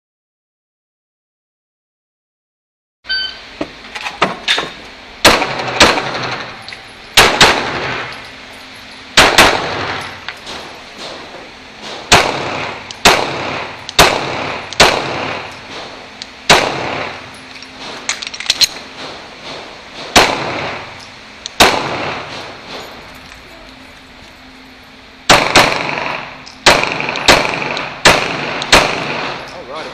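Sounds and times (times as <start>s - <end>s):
pistol shots: 5.2s - 6.6s, 7.2s - 8.2s, 9.2s - 22.8s, 25.3s - 29.5s.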